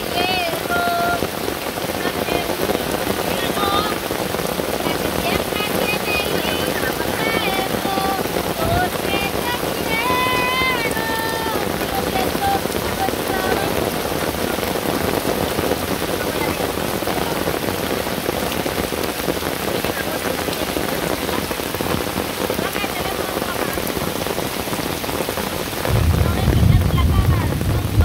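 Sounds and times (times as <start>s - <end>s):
rain falling: 0.0s - 28.0s.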